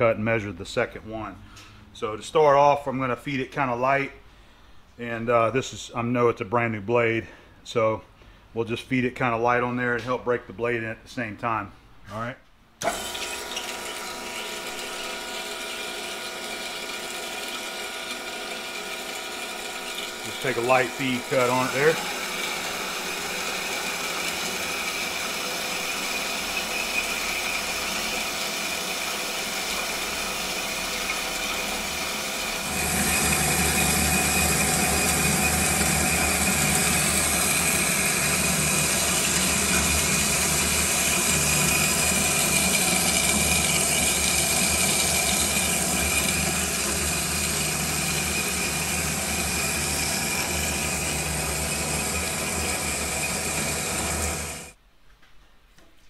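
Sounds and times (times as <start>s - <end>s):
bandsaw cutting metal: 12.8s - 54.8s.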